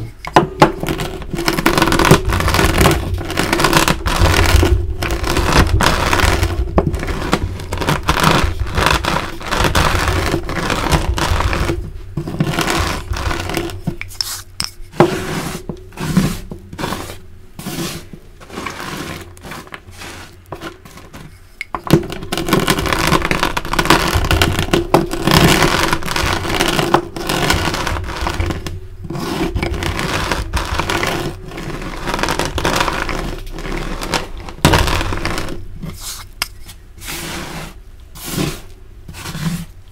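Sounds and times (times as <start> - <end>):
hand pushing crushed pieces: 0.0 - 39.8
rolling pin crushing chalk: 0.0 - 39.9.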